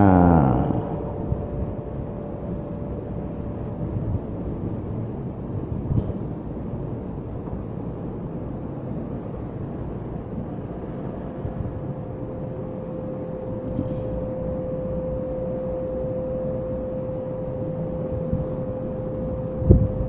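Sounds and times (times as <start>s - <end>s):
thin steady hum: 0.0s - 5.9s, 11.2s - 20.0s
low rumbling room noise: 0.0s - 20.0s.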